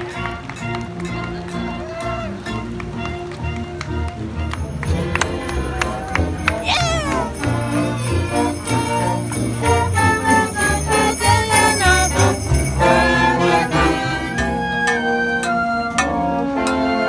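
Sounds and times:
concert band playing: 4.5 - 17.0
bells jingling: 4.7 - 14.3.

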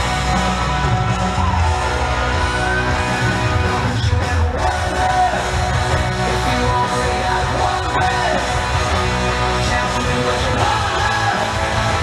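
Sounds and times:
rock music with electric guitar: 0.0 - 12.0.

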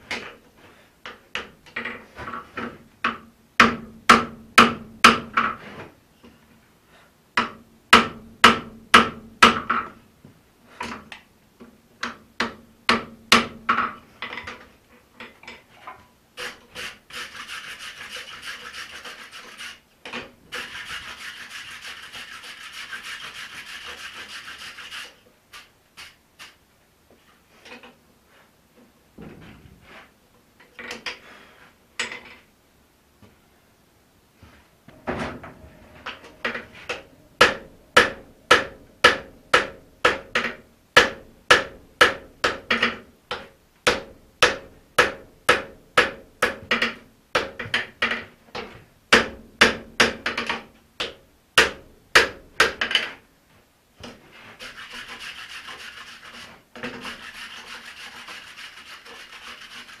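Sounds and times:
hammer striking hot metal on anvil: 36.2 - 40.3.

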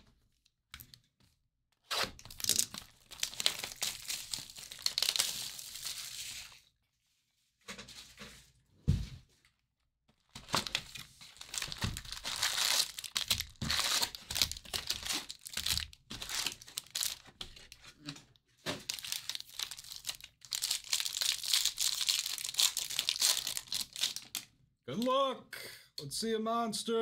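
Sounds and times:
foil pack tearing: 1.9 - 6.4, 10.4 - 17.2, 18.9 - 24.4
wrappers crinkling and tearing: 1.9 - 6.6, 10.2 - 18.2, 18.8 - 24.5.

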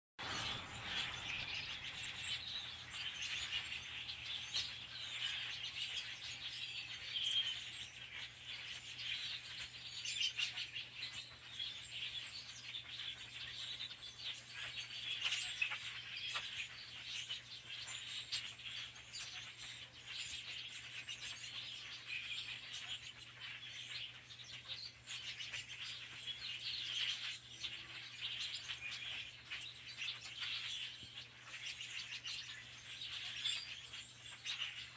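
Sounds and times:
flock of birds chirping: 0.2 - 34.9.

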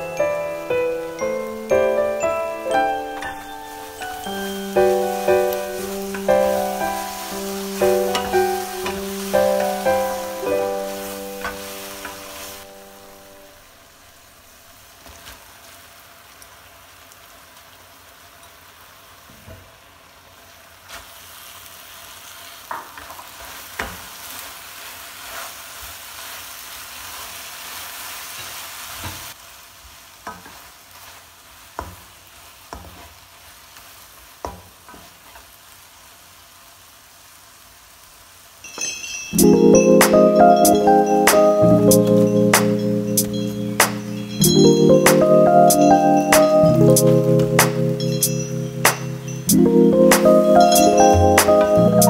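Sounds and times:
soft piano notes: 0.0 - 13.9, 38.7 - 52.0
food sizzling in a wok: 0.0 - 52.0.

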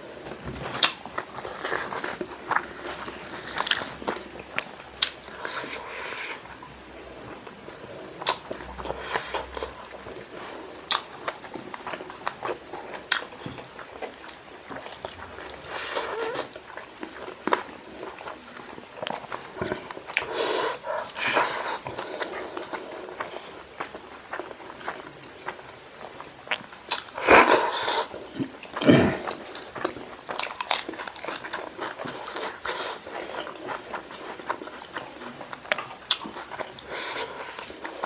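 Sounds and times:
wet chewing and smacking: 0.2 - 38.0.

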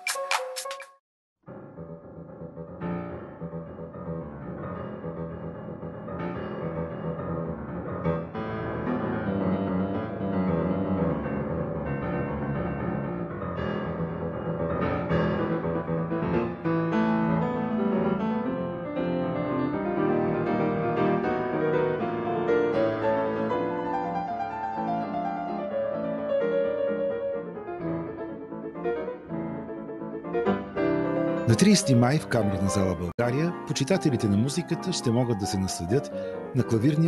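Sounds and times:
piano music with quick notes: 0.0 - 37.0.

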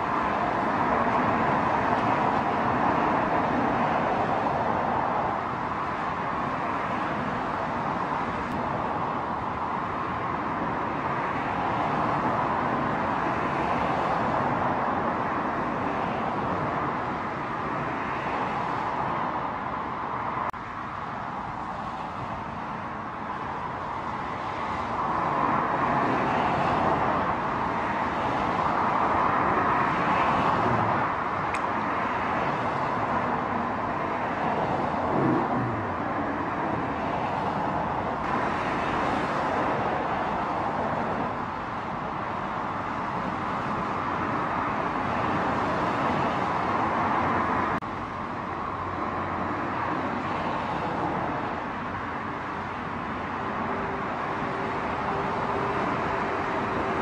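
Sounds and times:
expressway traffic roar: 0.0 - 57.0.

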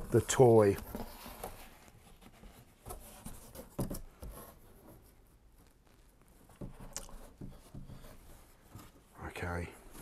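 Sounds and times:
faint rustling: 0.0 - 10.0.

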